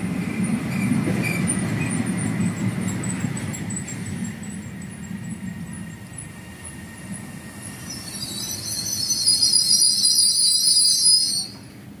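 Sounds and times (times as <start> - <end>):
train wheels rumbling: 0.0 - 12.0
high-pitched brake squeal: 7.6 - 11.7.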